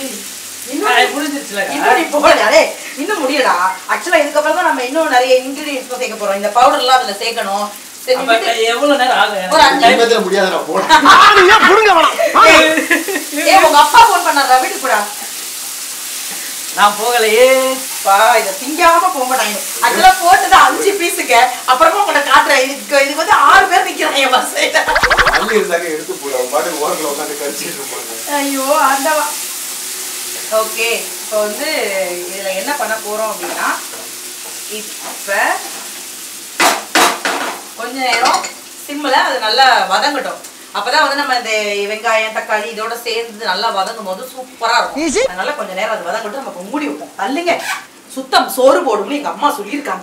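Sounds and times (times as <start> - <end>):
food sizzling in a pan: 0.0 - 50.0
voices talking: 24.9 - 25.7, 44.9 - 45.4.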